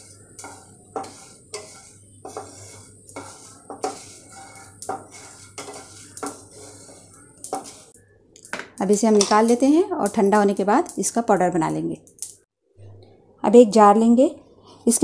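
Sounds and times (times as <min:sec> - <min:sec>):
wooden spatula scraping a pan: 0:00.0 - 0:08.0
spices rattling in a pan: 0:00.0 - 0:12.4.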